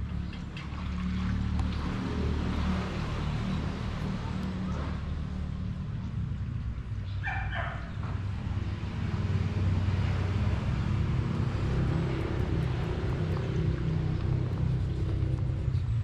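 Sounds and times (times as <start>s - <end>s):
low rumble: 10.2s - 16.0s.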